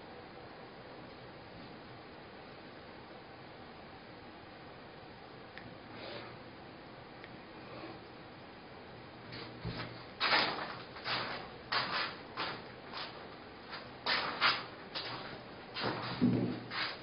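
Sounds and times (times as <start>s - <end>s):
irregular rubbing strokes: 9.4s - 17.0s.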